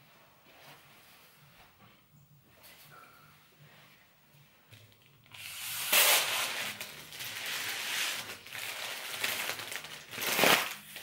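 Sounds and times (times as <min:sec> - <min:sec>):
foil balloon crinkling: 0:05.3 - 0:11.0.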